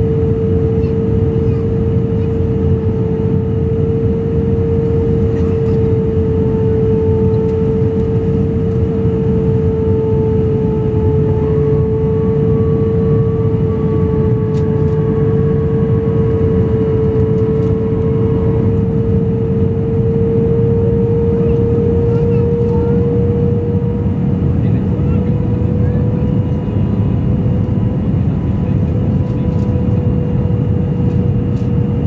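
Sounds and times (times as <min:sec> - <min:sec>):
airliner cabin engine rumble: 0:00.0 - 0:32.0
constant mid-pitched whine: 0:00.0 - 0:32.0.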